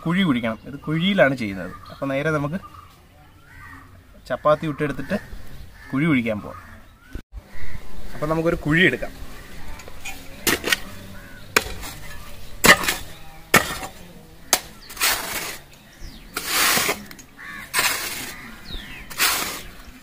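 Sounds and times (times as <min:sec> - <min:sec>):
hoe scraping earth: 0:09.5 - 0:20.0
hoe chopping into stony soil: 0:10.4 - 0:10.9, 0:11.5 - 0:15.6, 0:16.3 - 0:18.4, 0:19.1 - 0:19.7.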